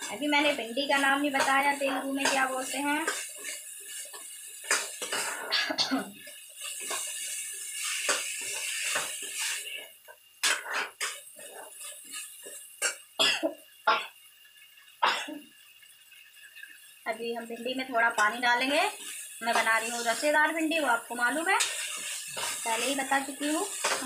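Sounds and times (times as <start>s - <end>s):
spoon scraping and knocking pan: 0.0s - 5.6s, 6.2s - 9.6s, 10.4s - 13.0s, 21.2s - 24.0s
frying hiss: 0.0s - 24.0s.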